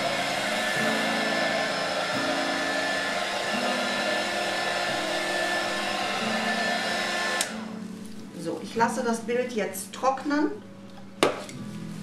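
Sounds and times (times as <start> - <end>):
heat gun blowing: 0.0 - 7.7.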